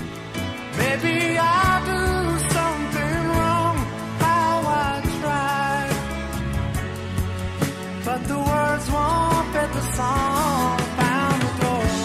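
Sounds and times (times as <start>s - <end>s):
pop ballad with band: 0.0s - 12.0s.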